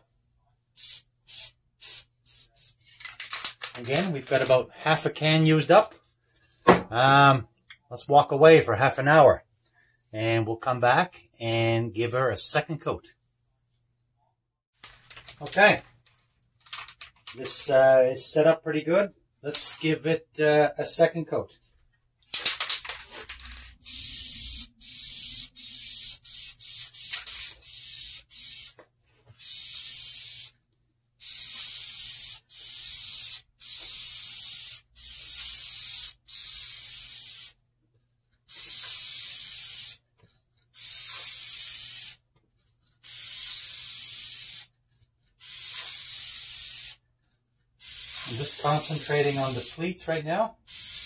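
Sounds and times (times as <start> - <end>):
aerosol can spraying: 0.8 - 2.9, 23.8 - 28.8, 29.4 - 30.6, 31.2 - 37.6, 38.5 - 40.0, 40.8 - 42.2, 43.0 - 44.7, 45.4 - 47.0, 47.8 - 49.8, 50.6 - 51.0.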